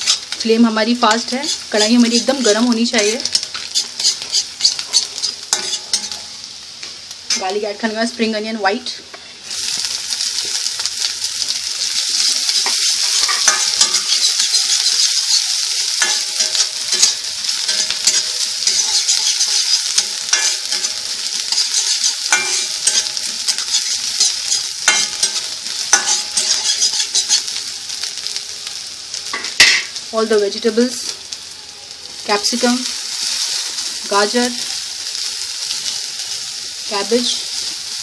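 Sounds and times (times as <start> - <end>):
food sizzling in hot oil: 0.0 - 38.0
metal spatula scraping pan: 1.1 - 6.3, 12.6 - 27.6.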